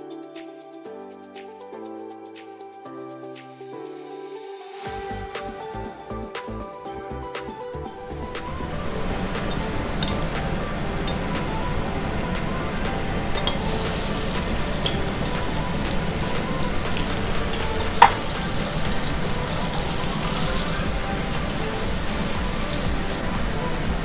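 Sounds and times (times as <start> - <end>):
seafood frying in oil: 13.4 - 24.0.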